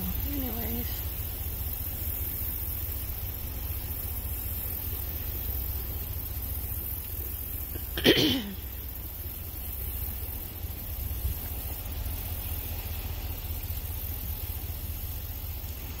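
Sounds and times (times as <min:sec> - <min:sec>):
person clearing throat: 0:08.0 - 0:08.6.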